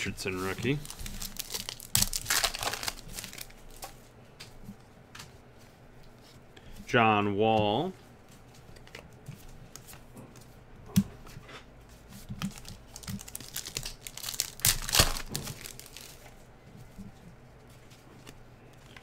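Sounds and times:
foil wrapper crinkling and tearing: 0.2s - 3.9s, 12.5s - 16.3s.

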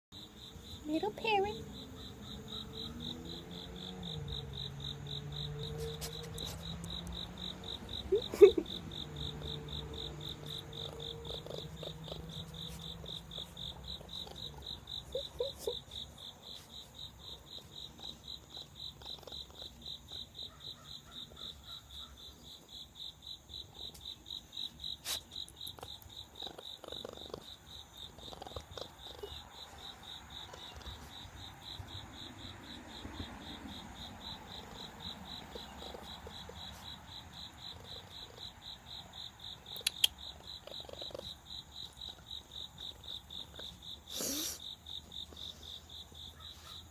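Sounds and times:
high pulsing animal chirping: 7.3s - 16.4s.

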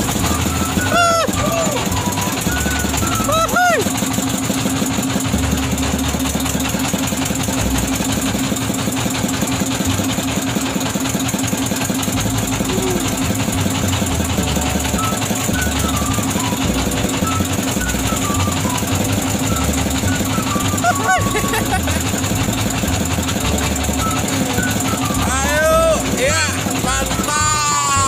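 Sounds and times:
boat engine knocking: 0.0s - 28.0s.

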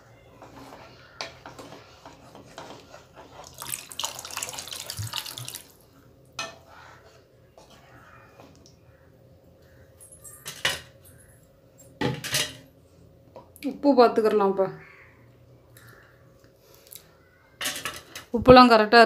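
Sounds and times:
water splashing into a pan: 3.4s - 5.8s.

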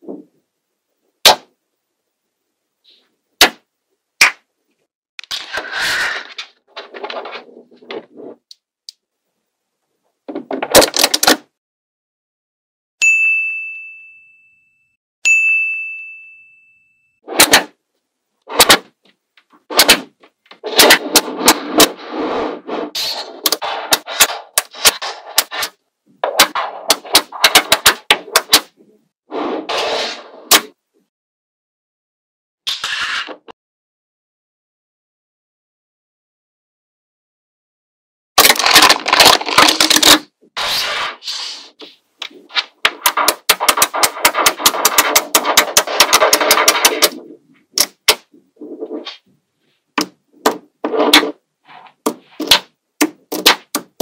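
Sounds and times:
bell-like dings: 13.0s - 17.2s
magnetic balls clicking and rattling: 42.2s - 49.2s.

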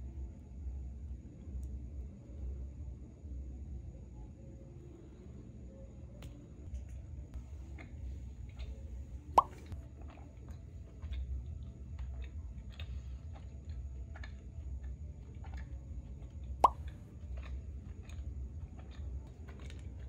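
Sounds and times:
faint low rumble: 0.0s - 20.0s.

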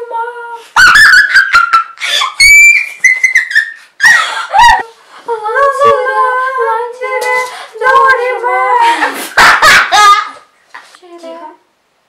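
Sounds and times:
girls singing wordless tune: 0.0s - 0.8s, 4.6s - 11.9s.

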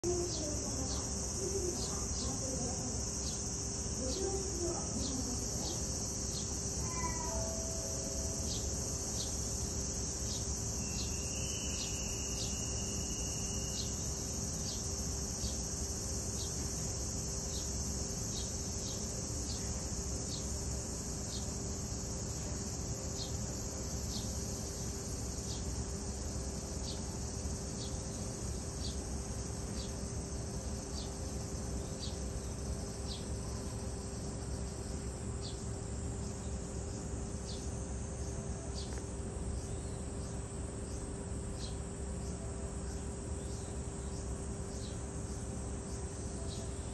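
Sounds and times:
low steady hum: 0.0s - 25.1s
insects droning: 0.0s - 46.9s.

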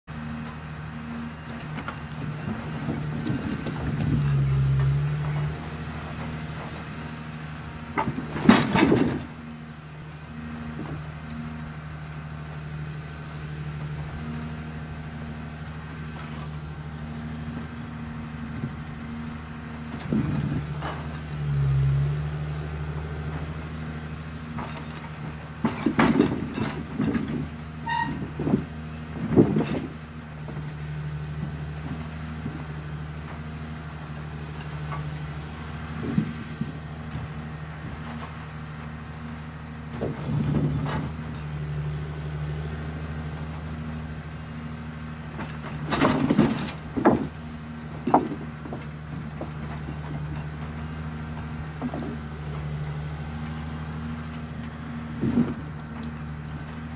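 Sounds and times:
diesel engine running: 0.0s - 56.9s
hydraulic crane: 0.1s - 56.9s
logs knocking and clattering: 45.4s - 47.4s, 48.0s - 50.3s.

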